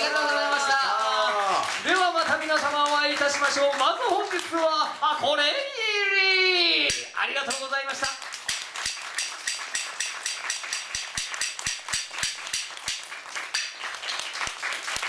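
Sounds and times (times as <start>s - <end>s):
audience applauding: 0.0s - 4.8s, 7.9s - 15.0s.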